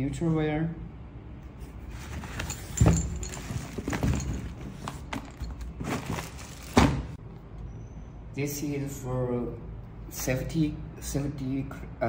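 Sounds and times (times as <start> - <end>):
rustling: 1.7 - 7.1.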